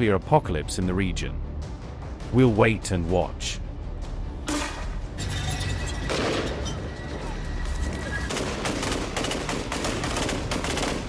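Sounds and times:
rifle gunfire: 8.3s - 11.0s.

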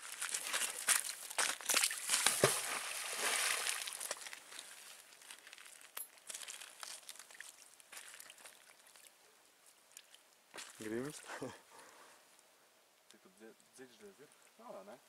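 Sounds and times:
rope rustling and crinkling: 0.0s - 11.4s.

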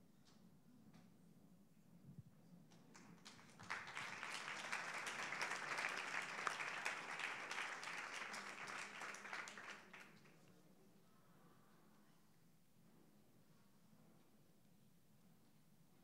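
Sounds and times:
audience applauding: 3.0s - 10.4s.

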